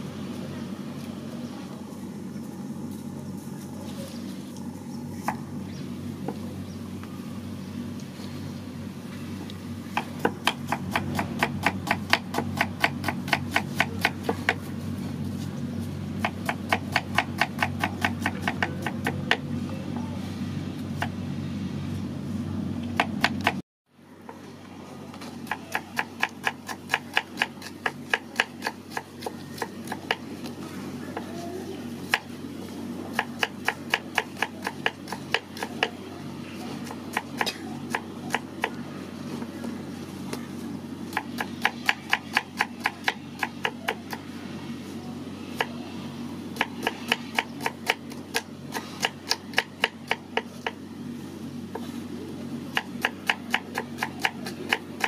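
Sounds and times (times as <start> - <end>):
knife chopping on wooden board: 25.4 - 30.3.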